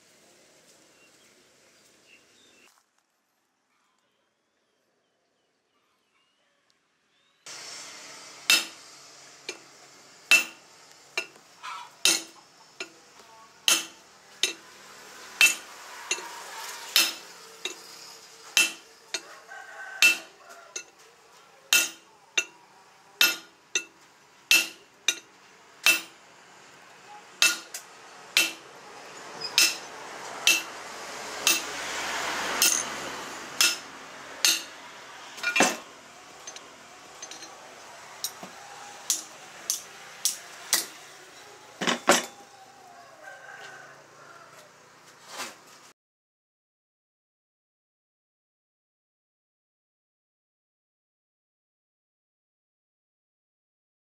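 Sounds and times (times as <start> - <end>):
hammer striking steel bar: 8.5 - 8.8, 10.3 - 11.4, 12.0 - 13.0, 13.7 - 14.6, 15.4 - 16.3, 17.0 - 17.8, 18.6 - 19.2, 20.0 - 20.9, 21.7 - 22.5, 23.2 - 26.2, 27.4 - 27.8, 28.4 - 28.7, 29.5 - 30.8, 31.4 - 31.8, 32.6 - 33.0, 33.6 - 34.8, 38.2 - 41.0
rushing noise: 25.6 - 41.8.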